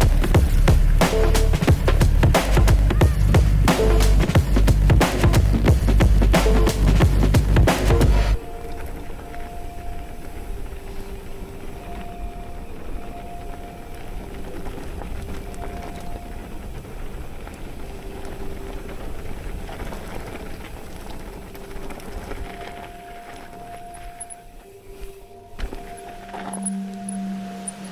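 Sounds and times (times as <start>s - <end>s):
bike tyres crunching on gravel: 0.0s - 27.9s
wind rumbling on microphone: 0.0s - 27.9s
faint two-pitch tone: 22.6s - 27.9s.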